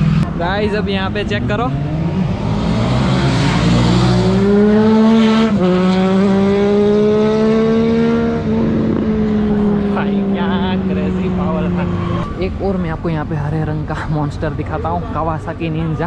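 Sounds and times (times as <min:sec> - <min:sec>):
motorcycle engine accelerating: 0:00.0 - 0:12.4.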